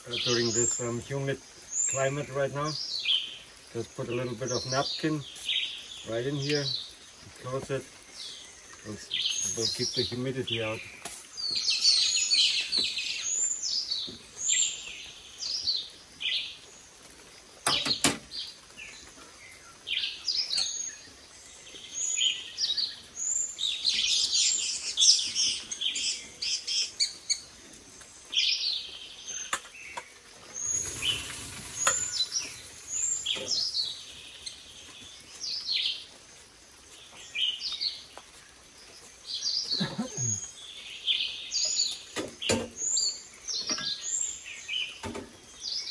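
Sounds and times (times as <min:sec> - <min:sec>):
birds chirping and whistling: 0:00.0 - 0:16.6, 0:17.6 - 0:36.1, 0:39.3 - 0:45.9.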